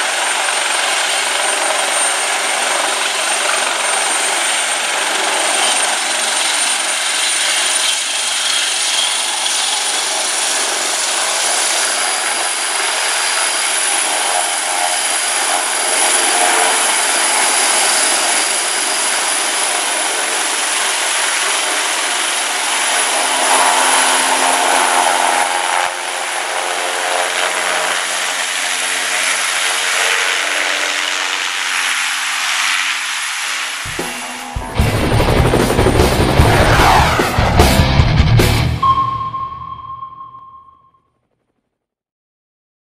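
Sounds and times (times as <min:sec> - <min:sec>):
helicopter engines and rotor roar: 0:00.0 - 0:39.1
high turbine whine: 0:21.3 - 0:40.8.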